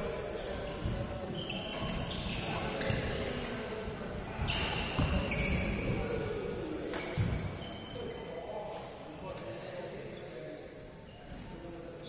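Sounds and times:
shoes squeaking on court floor: 0.1s - 3.8s, 4.4s - 8.3s
rackets hitting shuttlecock: 6.8s - 7.4s.

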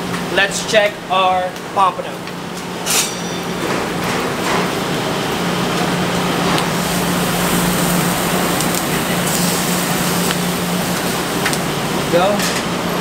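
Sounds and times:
constant low hum: 0.0s - 13.0s
vegetables sizzling in a pan: 6.7s - 11.6s.

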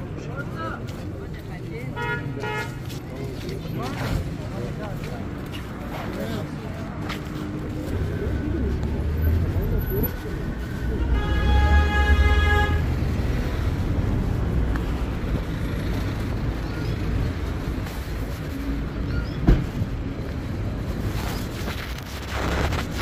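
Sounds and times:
street traffic: 0.0s - 23.0s
vehicle horn: 11.0s - 12.9s.

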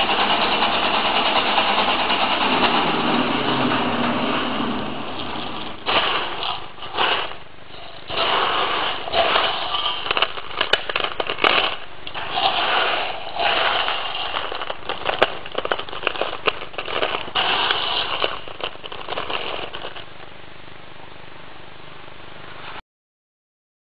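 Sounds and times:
almond shells rattling: 5.6s - 20.3s.

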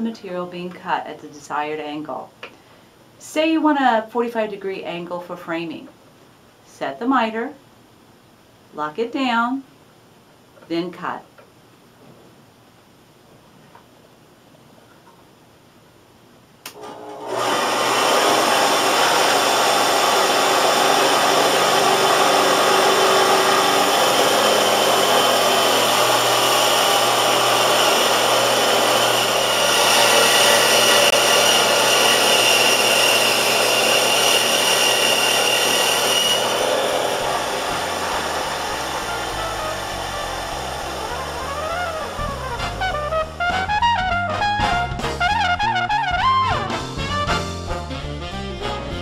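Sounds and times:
band saw cutting wood: 16.8s - 43.8s
high-pitched whine: 33.8s - 43.3s
music: 38.5s - 49.0s.

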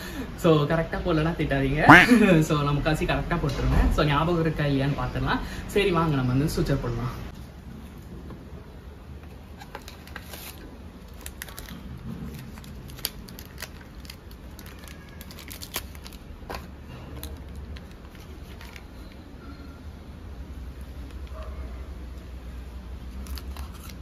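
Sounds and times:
suture packet crinkling: 9.7s - 16.4s.

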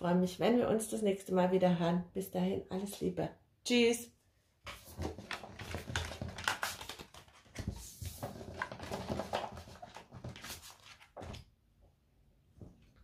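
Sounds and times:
cards rustling and sliding: 4.7s - 11.4s.

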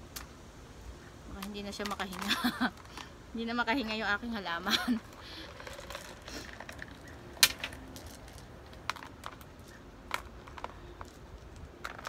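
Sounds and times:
small stones clicking and tapping: 5.0s - 12.0s.

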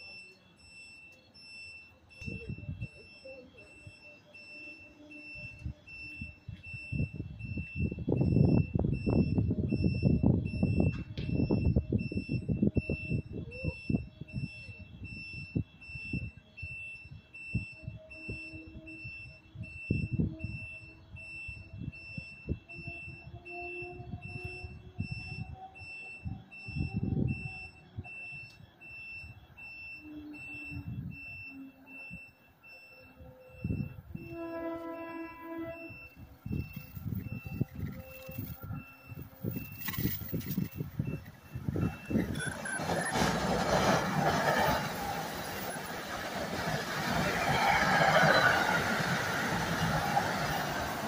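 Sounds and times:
electronic alarm tone beeping: 0.0s - 45.9s
train horn: 34.2s - 36.0s.

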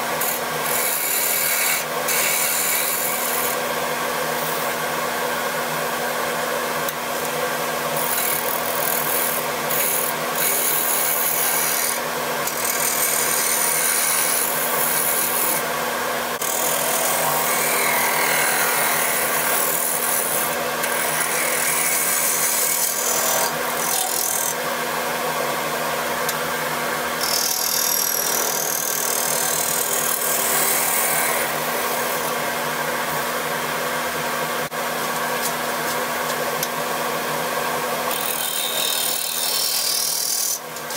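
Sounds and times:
wood lathe motor hum: 7.9s - 15.8s, 16.4s - 24.6s, 27.2s - 32.5s.

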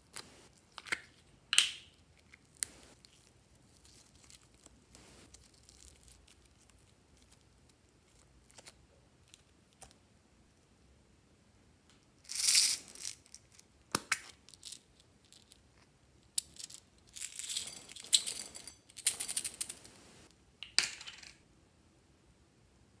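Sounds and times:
plastic beads rattling in bottle: 12.3s - 13.5s, 16.4s - 20.0s.

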